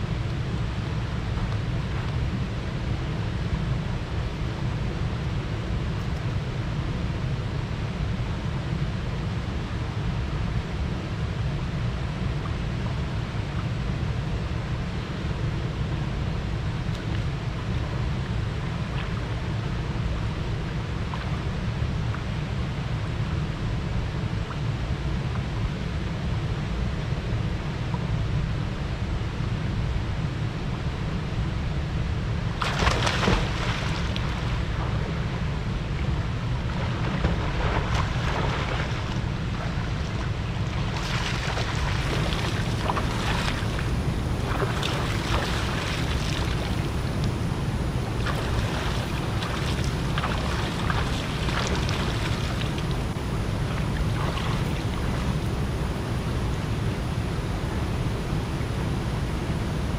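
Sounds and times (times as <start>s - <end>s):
steady low rumble: 0.0s - 59.9s
water splashing: 32.6s - 34.8s, 36.7s - 56.0s.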